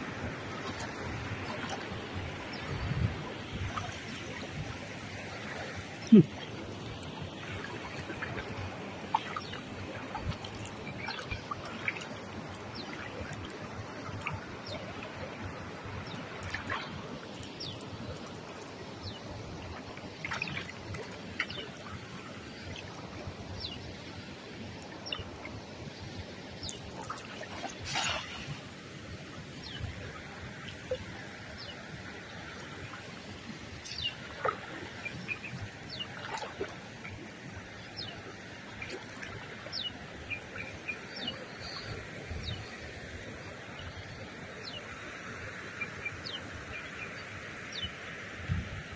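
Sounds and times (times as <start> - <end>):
shallow water splashing: 0.0 - 23.8, 24.4 - 44.8.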